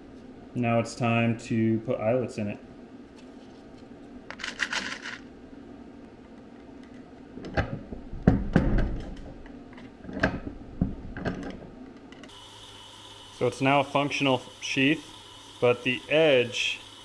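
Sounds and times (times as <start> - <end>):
small parts clicking and rustling: 4.3 - 5.3
press heavy knock and crunch: 7.7 - 9.2.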